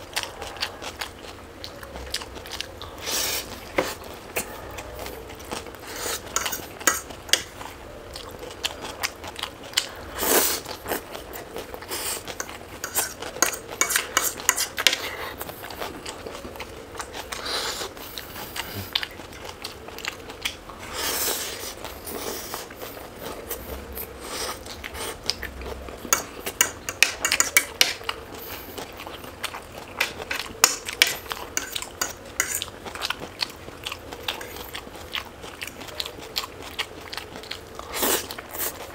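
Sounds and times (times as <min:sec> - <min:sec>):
chewing: 0:00.0 - 0:38.9
cutlery clinking on dishes: 0:06.3 - 0:07.5, 0:12.4 - 0:15.2, 0:26.1 - 0:28.0, 0:30.6 - 0:32.7.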